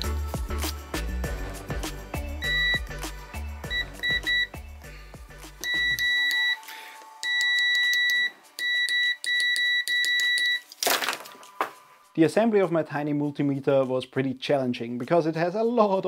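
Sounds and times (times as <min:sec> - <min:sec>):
background music: 0:00.0 - 0:16.0
multimeter beeping: 0:02.4 - 0:02.8, 0:03.7 - 0:04.6, 0:05.6 - 0:10.7.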